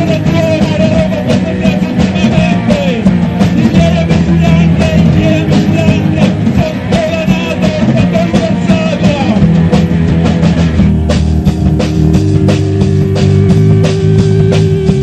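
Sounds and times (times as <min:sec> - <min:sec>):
person singing: 0:00.0 - 0:09.5
rock band playing live: 0:00.0 - 0:15.0.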